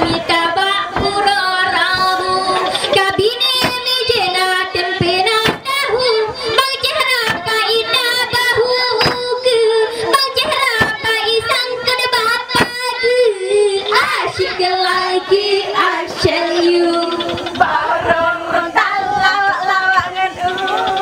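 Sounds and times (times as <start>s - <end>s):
girl singing with vibrato: 0.0s - 21.0s
sharp percussive beats: 0.1s - 8.4s, 9.0s - 9.4s, 12.4s - 12.9s.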